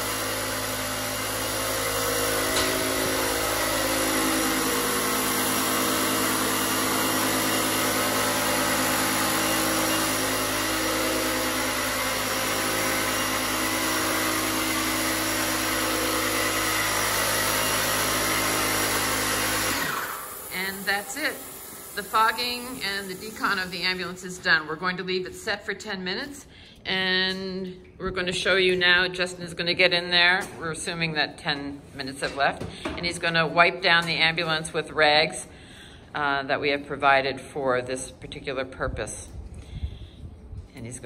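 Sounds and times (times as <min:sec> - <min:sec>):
cordless fogger spraying: 0:00.0 - 0:24.9.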